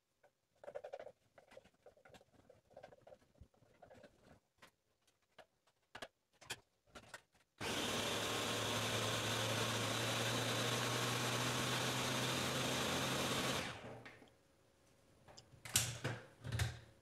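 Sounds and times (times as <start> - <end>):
blender motor whirring: 7.6 - 13.9.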